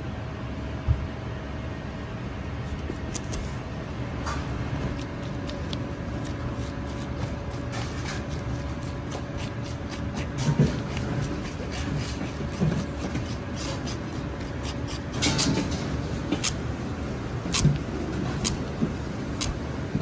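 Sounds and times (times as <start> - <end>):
steady hum: 0.0 - 20.0
metal spoon scraping squash: 4.9 - 16.6.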